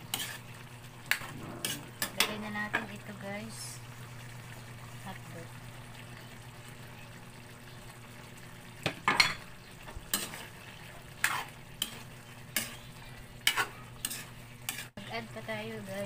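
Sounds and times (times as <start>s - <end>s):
low hum: 1.2s - 6.6s.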